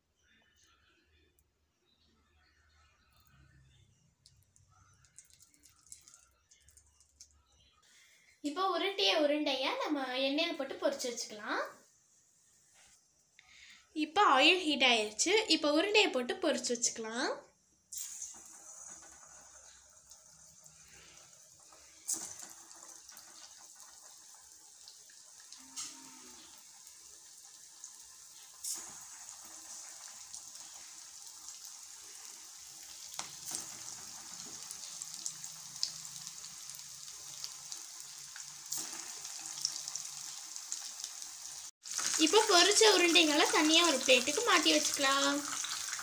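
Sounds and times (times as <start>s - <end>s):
oil crackles: 5.0s - 7.3s, 28.4s - 46.0s
hot oil sizzling: 17.9s - 46.0s.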